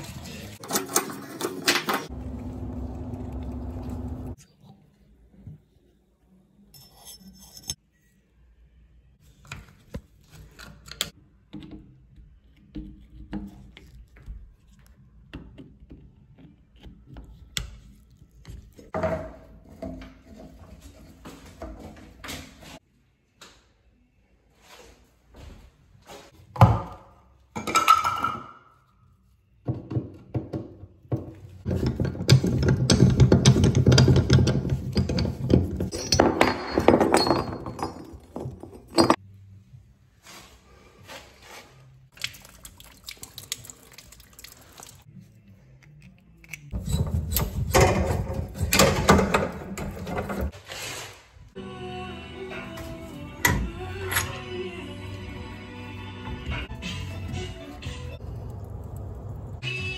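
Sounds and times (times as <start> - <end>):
clattering and rattling: 31.6 - 39.2.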